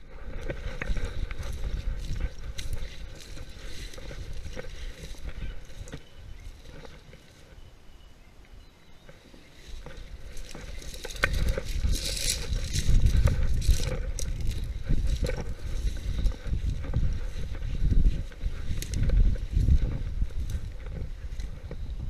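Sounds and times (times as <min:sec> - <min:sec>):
dry grass rustling and crackling: 0:00.0 - 0:08.2, 0:08.8 - 0:22.0
wind rumbling on microphone: 0:00.0 - 0:22.0.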